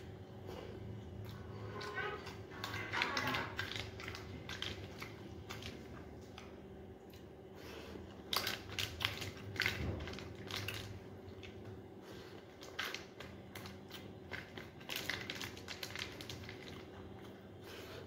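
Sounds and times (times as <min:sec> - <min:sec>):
chewing and crunching: 0:00.0 - 0:18.0
faint steady hum: 0:00.0 - 0:18.0
foil tray crinkling: 0:01.7 - 0:06.1, 0:12.6 - 0:17.2.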